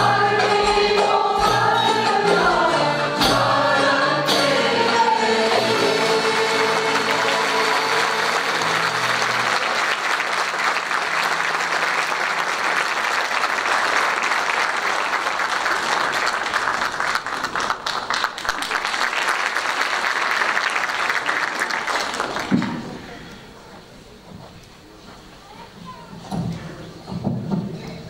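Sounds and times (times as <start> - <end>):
audience applauding: 5.4 - 23.4.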